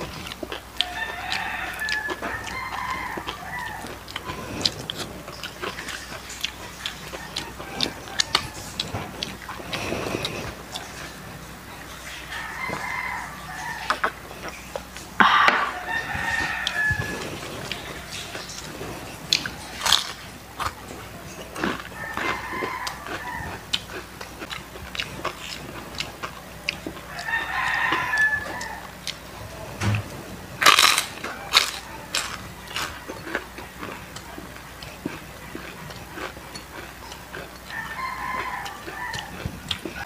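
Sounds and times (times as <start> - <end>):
crunching and chewing chicken skin: 0.0 - 40.0
rooster crowing: 0.8 - 4.7, 7.1 - 9.1, 12.0 - 14.3, 15.2 - 18.5, 21.6 - 23.7, 27.0 - 30.2, 30.8 - 34.0, 37.7 - 40.0.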